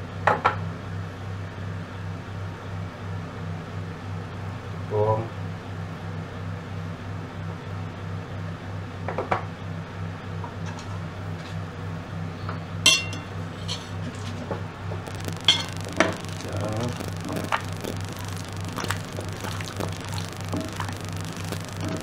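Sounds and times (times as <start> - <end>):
steady low hum: 14.7 - 22.0.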